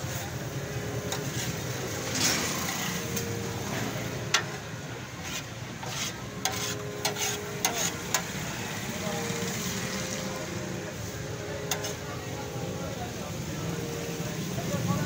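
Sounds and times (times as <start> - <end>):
background noise: 0.0 - 15.0
metal spatula scraping griddle: 0.8 - 9.4, 11.2 - 12.2.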